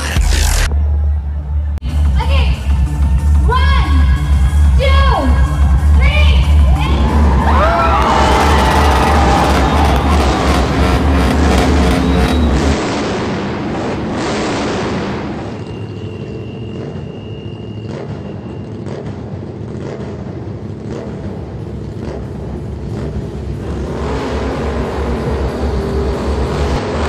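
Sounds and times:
bass-heavy music from loudspeakers: 0.0s - 12.8s
motorcycle engines rumbling: 0.0s - 27.0s.

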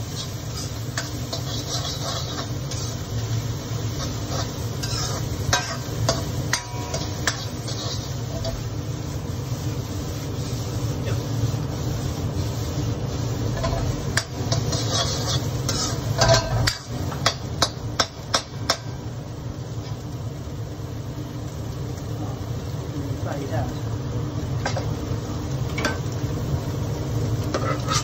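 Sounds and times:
ladle scraping in wok: 0.0s - 8.8s, 10.0s - 17.4s, 27.4s - 28.0s.

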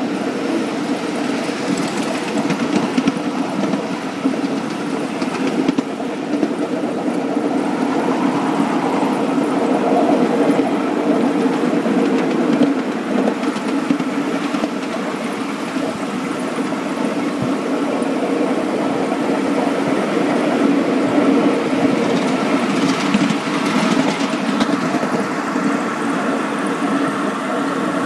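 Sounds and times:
model locomotive engine hum: 0.0s - 28.0s.

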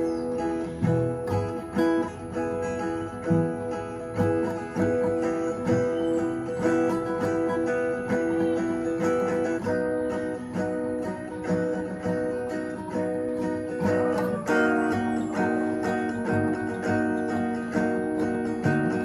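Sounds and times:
acoustic guitar strummed chords: 0.0s - 19.0s.

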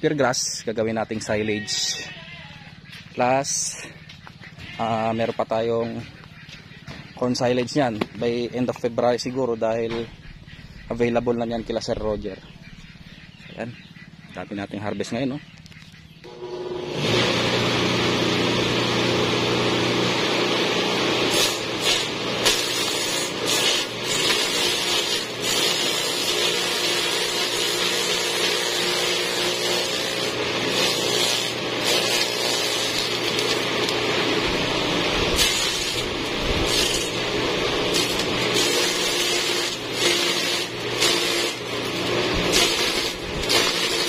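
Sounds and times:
forage chopper humming: 0.0s - 44.0s
blades cutting grass stalks: 21.1s - 44.0s.

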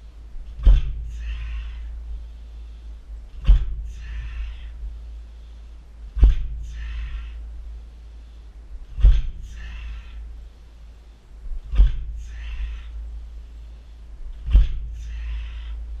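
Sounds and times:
kicks thudding on tyre: 0.6s - 1.1s, 3.4s - 3.9s, 6.2s - 6.6s, 9.0s - 9.4s, 11.7s - 12.2s, 14.4s - 15.0s.

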